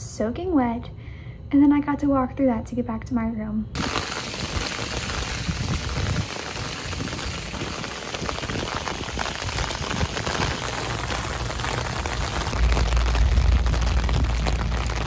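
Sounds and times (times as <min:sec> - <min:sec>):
heavy rain pouring: 0:03.8 - 0:15.0.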